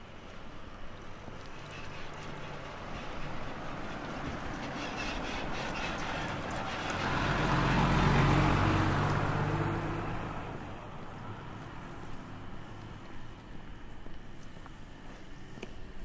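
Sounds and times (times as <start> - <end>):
vehicle driving past: 1.4 - 13.9.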